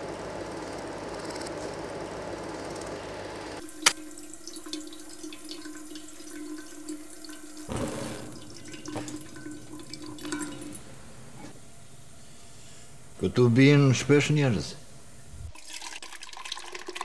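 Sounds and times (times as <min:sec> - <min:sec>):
steady hum: 0:00.0 - 0:15.6
water trickling into a kettle: 0:03.6 - 0:11.8, 0:15.5 - 0:17.0.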